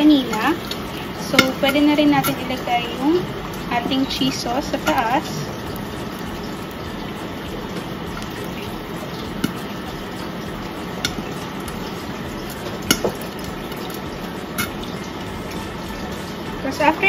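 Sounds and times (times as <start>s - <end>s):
spatula tapping against bowl: 0.1s - 2.5s, 4.1s - 5.3s, 9.4s - 9.6s, 11.0s - 11.9s, 12.8s - 13.8s.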